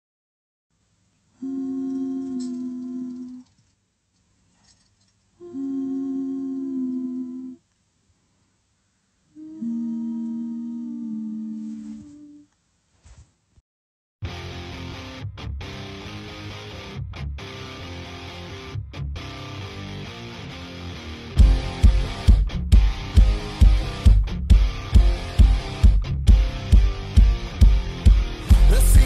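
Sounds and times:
long held intro music notes: 19.5s - 29.0s.

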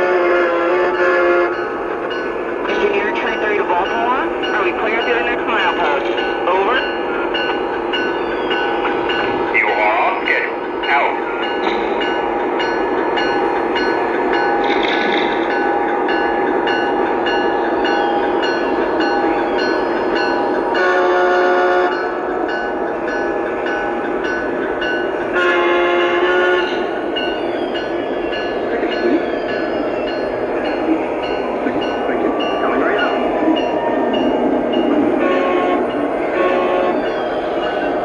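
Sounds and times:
train horn blasts: 0.0s - 1.8s, 20.7s - 22.1s, 25.2s - 27.0s, 35.0s - 37.2s
model train running on track: 0.0s - 38.0s
steady train sound hum: 0.0s - 38.0s.

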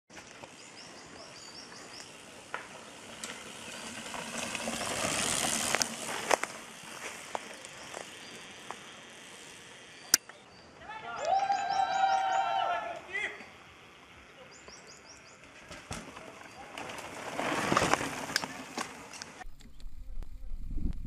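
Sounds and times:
birds chirping: 0.1s - 16.9s
bike tyres rolling on dirt: 0.1s - 21.0s
bike knocks and rattles: 15.3s - 19.4s.

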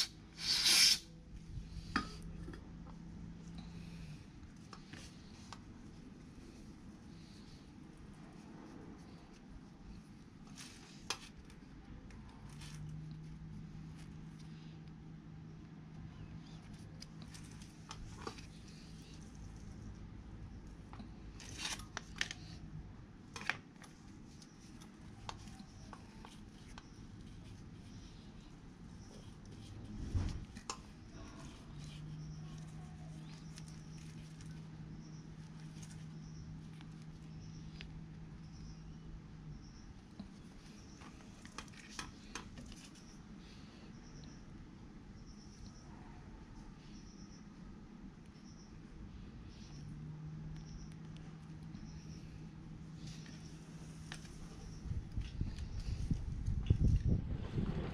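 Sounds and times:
cloth rubbing small parts: 0.0s - 14.7s, 23.4s - 37.9s
faint low hum: 1.0s - 57.9s.

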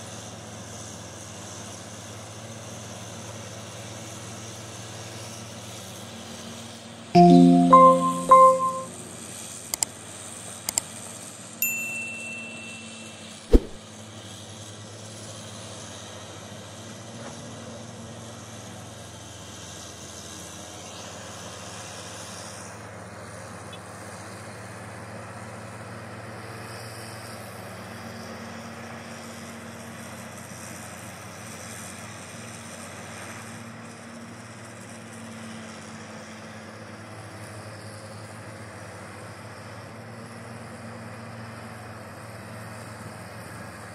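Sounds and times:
sharp knock: 13.5s - 13.8s.

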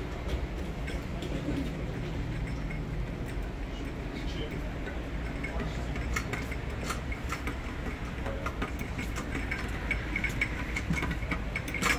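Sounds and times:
traffic rumble: 0.0s - 11.9s.

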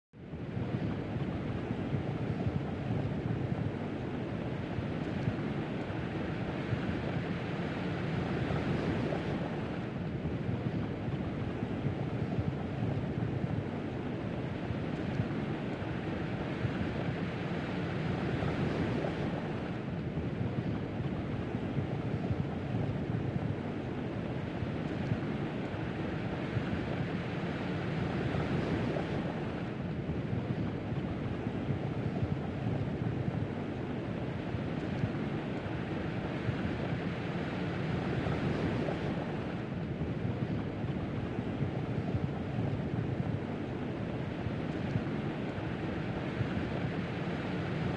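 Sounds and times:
wind buffeting microphone: 0.3s - 47.9s
sea rushing: 13.2s - 47.9s.

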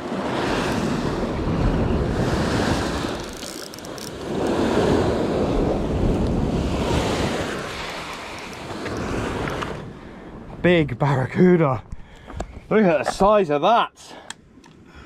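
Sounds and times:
sea waves surging: 0.0s - 10.7s
wind buffeting microphone: 0.0s - 12.9s.

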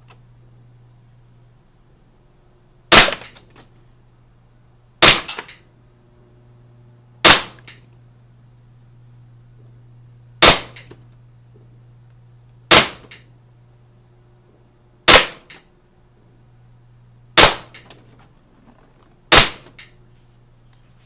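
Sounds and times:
airsoft pistol shots: 2.9s - 3.4s, 5.0s - 5.6s, 7.2s - 7.8s, 10.4s - 11.0s, 12.7s - 13.3s, 15.1s - 15.6s, 17.4s - 17.9s, 19.3s - 19.9s.

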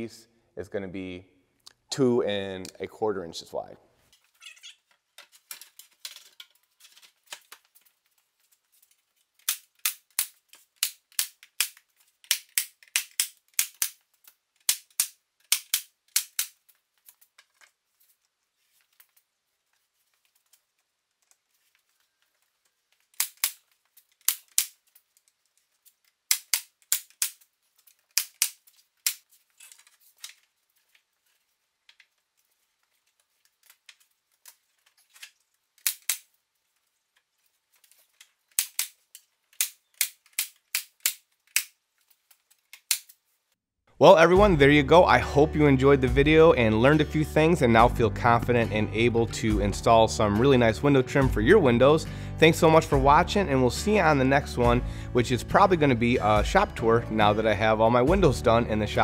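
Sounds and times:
nail gun firing snaps: 9.5s - 14.0s, 14.6s - 16.6s, 23.2s - 23.6s, 26.3s - 27.4s, 35.8s - 36.3s.

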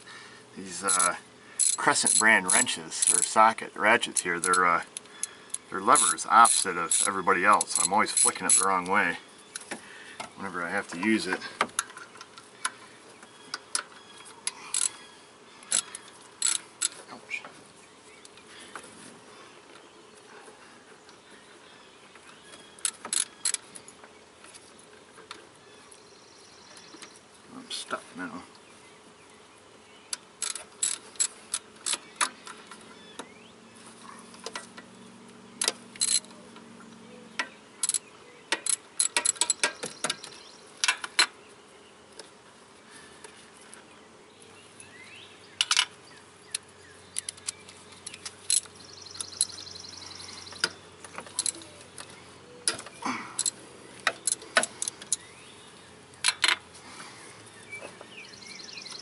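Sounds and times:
metal tools clinking: 0.9s - 4.7s, 5.9s - 8.8s
socket ratchet clicking: 15.7s - 17.0s, 30.4s - 32.3s, 35.6s - 36.3s.

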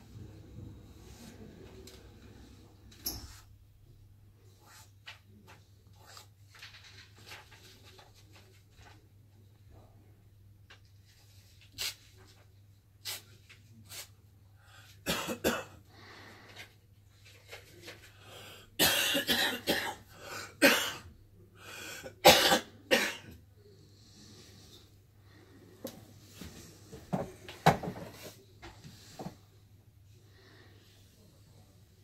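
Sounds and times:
person coughing: 15.0s - 15.8s, 18.8s - 21.1s, 22.0s - 23.4s.

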